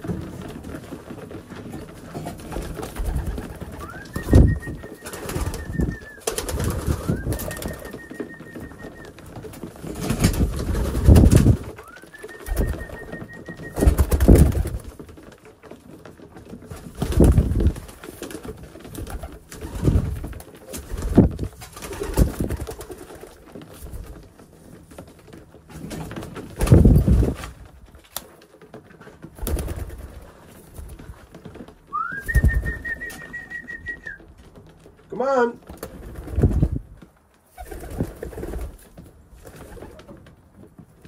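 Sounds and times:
wing flutters: 0.0s - 15.2s, 16.6s - 24.3s, 29.3s - 34.3s.

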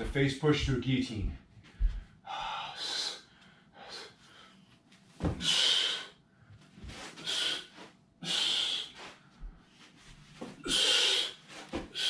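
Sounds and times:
bare feet thumping on carpet: 1.2s - 2.1s, 5.2s - 5.4s.

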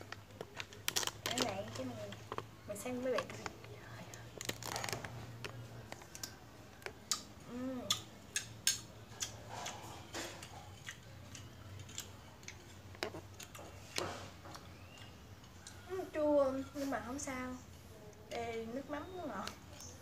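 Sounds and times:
person chewing and smacking: 0.0s - 2.6s, 3.2s - 15.8s.

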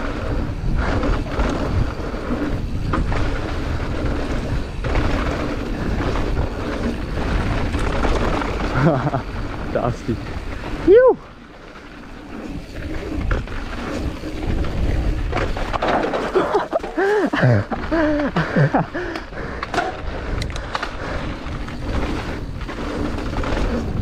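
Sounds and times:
bike rattles and knocks: 0.0s - 24.0s
bike tyre rolling on dirt: 0.0s - 24.0s.

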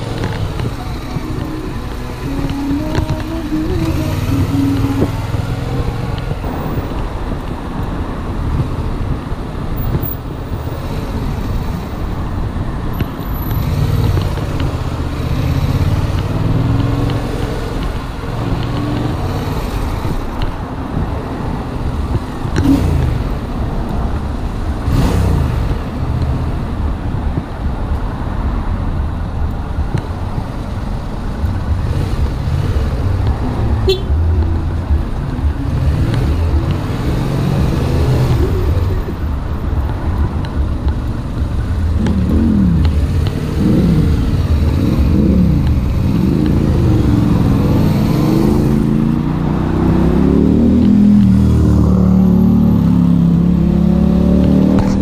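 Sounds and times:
motorcycle engine running: 0.0s - 6.5s
traffic and road noise: 0.0s - 55.0s.

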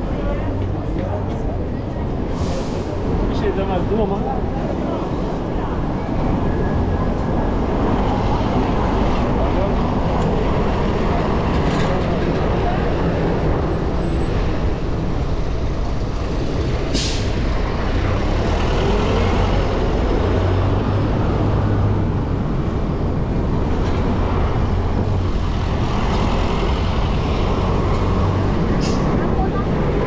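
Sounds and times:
road noise: 0.0s - 30.0s.

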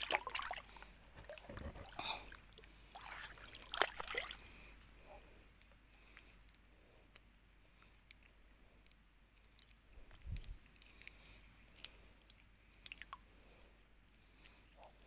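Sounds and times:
faint ticks and clicks: 4.8s - 13.3s, 14.0s - 15.0s.

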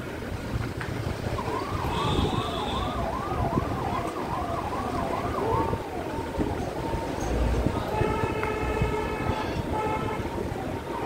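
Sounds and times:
engine and street noise: 0.0s - 11.0s
electronic siren yelping: 1.4s - 7.9s.

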